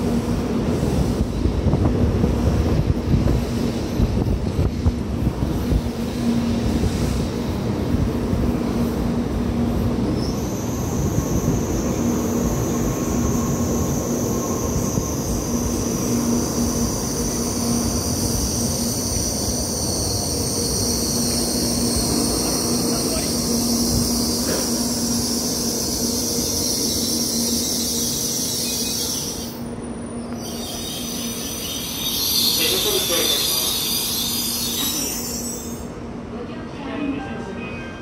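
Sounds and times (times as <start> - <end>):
train rumbling: 0.0 - 38.0
high brake squeal: 16.6 - 35.9.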